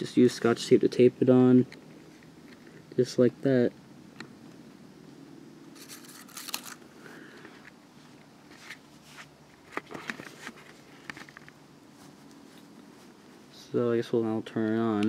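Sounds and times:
paper rustling: 0:05.8 - 0:06.8, 0:08.5 - 0:12.7.

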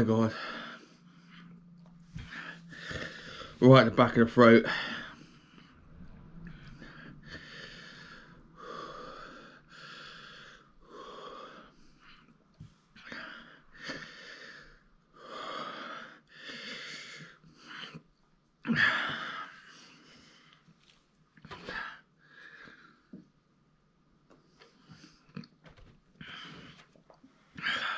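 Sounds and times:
man breathing hard and wheezing: 0:00.2 - 0:03.6, 0:04.6 - 0:18.1, 0:26.2 - 0:27.9.

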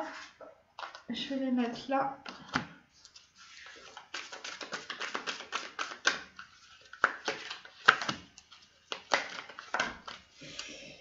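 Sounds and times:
cards being shuffled: 0:02.2 - 0:10.7.

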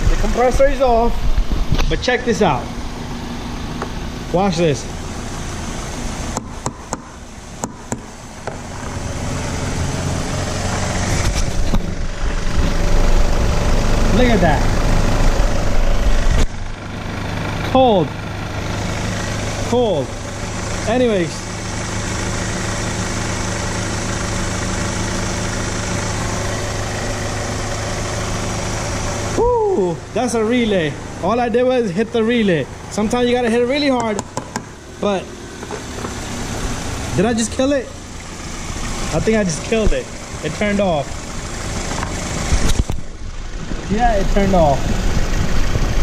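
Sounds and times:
ac compressor running: 0:00.0 - 0:46.0
car engine idling: 0:00.0 - 0:46.0
tool knocking on metal: 0:34.0 - 0:34.7.

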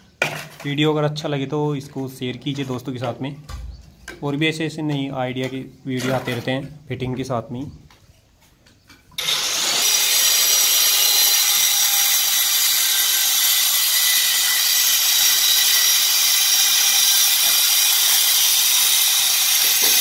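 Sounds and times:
electric stone cutter sawing granite: 0:09.2 - 0:20.0.

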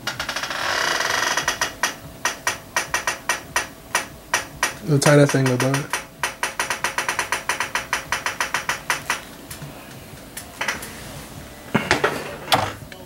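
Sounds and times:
computer keys clicking: 0:02.3 - 0:09.2.

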